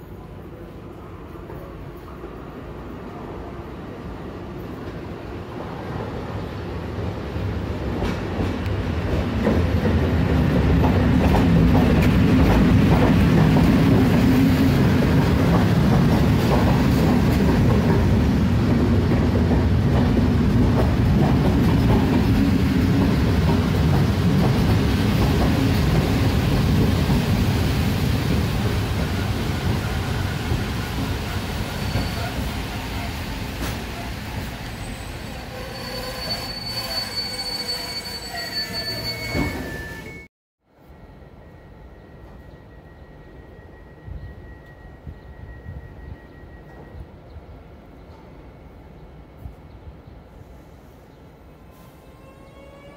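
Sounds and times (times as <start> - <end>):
passenger train rumbling past: 0.0 - 40.2.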